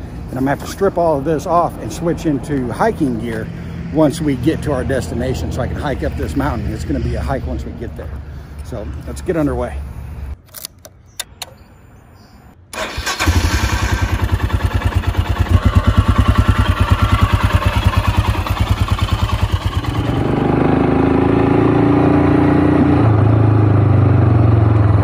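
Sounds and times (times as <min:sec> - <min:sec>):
motorcycle engine drone riding: 0:00.0 - 0:10.4, 0:13.2 - 0:25.0
motorcycle engine starting: 0:12.7 - 0:25.0
motorcycle engine idling: 0:13.1 - 0:20.1.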